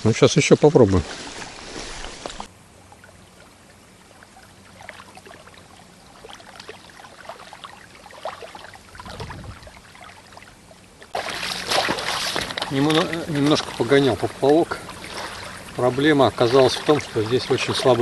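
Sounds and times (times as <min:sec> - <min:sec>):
river water trickling: 0:00.0 - 0:18.0
steady low hiss: 0:00.0 - 0:18.0
small ticks and spatters: 0:11.0 - 0:14.7.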